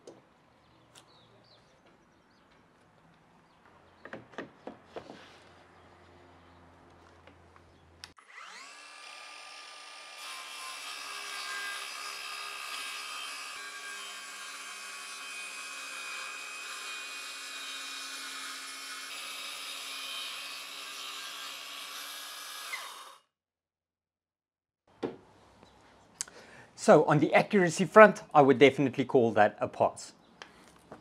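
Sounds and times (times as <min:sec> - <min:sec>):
saw blade cutting plywood: 0:08.1 - 0:23.2
circular saw motor whine: 0:08.2 - 0:09.0.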